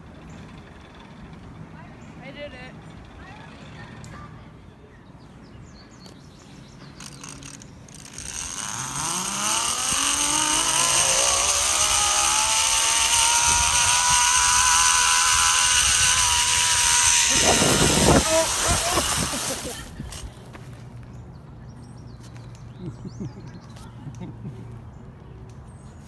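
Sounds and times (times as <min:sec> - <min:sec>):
pulley wheels whining on cable: 0:07.0 - 0:20.4.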